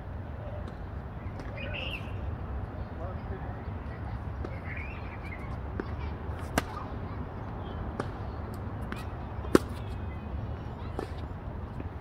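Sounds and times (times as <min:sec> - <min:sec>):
tennis ball hitting racket: 0:05.8 - 0:06.8, 0:08.8 - 0:10.0.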